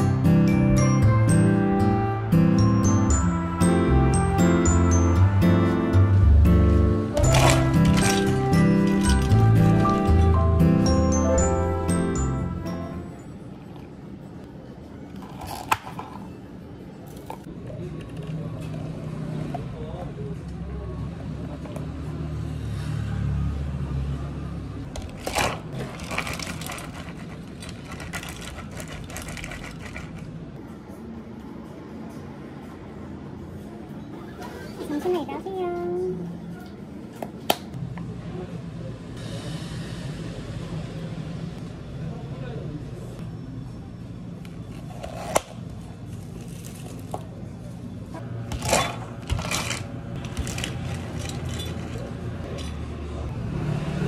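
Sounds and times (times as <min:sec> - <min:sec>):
low hum of cafe equipment: 0:00.0 - 0:54.0
ice clattering into cup: 0:07.2 - 0:10.4, 0:25.0 - 0:30.3, 0:48.5 - 0:52.7
ice cubes clinking on plastic: 0:07.2 - 0:10.4, 0:25.0 - 0:30.3, 0:48.5 - 0:52.7.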